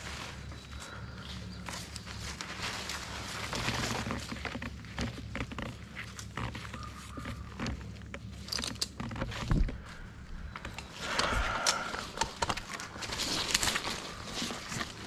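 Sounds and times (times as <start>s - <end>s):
branches crunching and scraping: 0.0s - 15.0s
brush rustling: 0.0s - 15.0s
twigs snapping: 10.6s - 15.0s.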